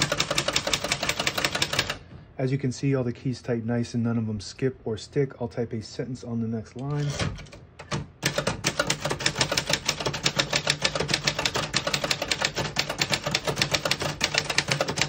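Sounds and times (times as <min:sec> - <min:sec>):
typewriter keys clacking: 0:00.0 - 0:02.0, 0:07.0 - 0:15.0.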